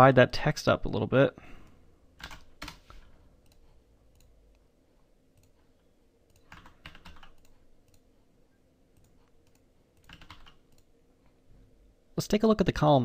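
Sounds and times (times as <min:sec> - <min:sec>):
faint steady hum: 0:00.0 - 0:13.0
computer keyboard keystrokes: 0:02.2 - 0:04.3, 0:06.3 - 0:08.0, 0:09.0 - 0:10.9.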